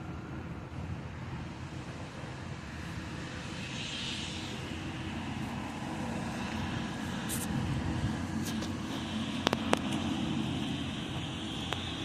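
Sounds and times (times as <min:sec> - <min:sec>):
distant road traffic hum: 0:00.0 - 0:12.0.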